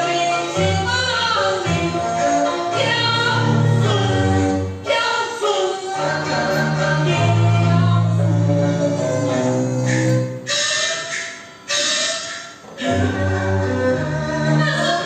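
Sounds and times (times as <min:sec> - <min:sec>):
instrumental accompaniment: 0:00.0 - 0:15.0
person singing long wavering notes: 0:12.8 - 0:15.0.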